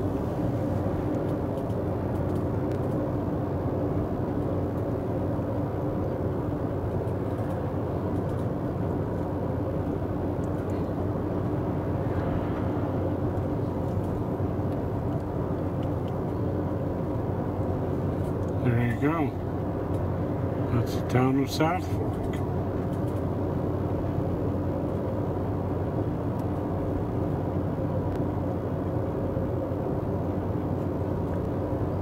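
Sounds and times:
road and engine noise in cabin: 0.0s - 32.0s
truck passing: 8.7s - 24.5s.

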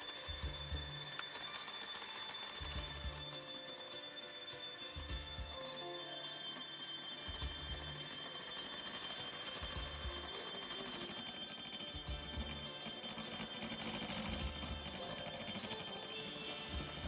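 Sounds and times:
electric hand mixer whining: 0.0s - 17.0s.

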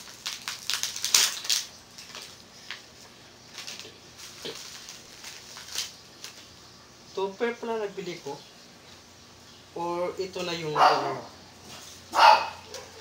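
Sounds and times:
plastic bag crinkling: 0.0s - 6.6s, 11.8s - 13.0s.

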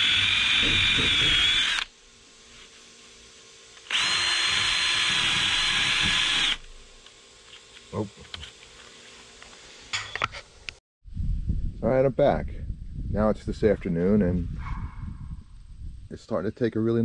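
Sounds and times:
cordless drill sanding whine: 0.0s - 9.6s.

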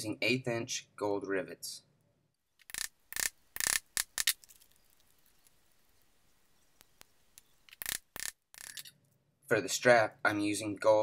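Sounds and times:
metal rivets clicking: 2.6s - 5.6s, 6.7s - 9.2s.

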